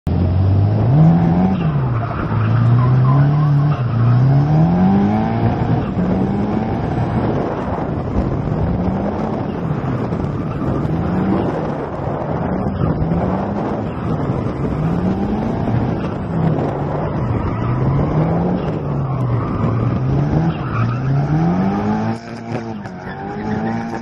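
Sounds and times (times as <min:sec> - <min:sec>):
car engine revving hard: 0:00.1 - 0:24.0
tyres sliding and squealing: 0:01.0 - 0:06.9, 0:13.8 - 0:24.0.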